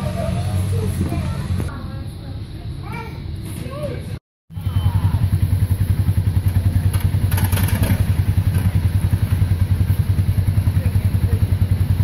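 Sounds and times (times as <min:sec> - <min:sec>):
engine idling: 0:04.5 - 0:12.0.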